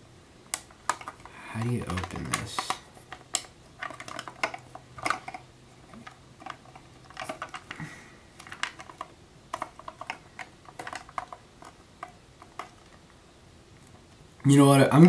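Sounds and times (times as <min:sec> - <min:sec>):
plastic case clicking and tapping: 0:00.6 - 0:07.8.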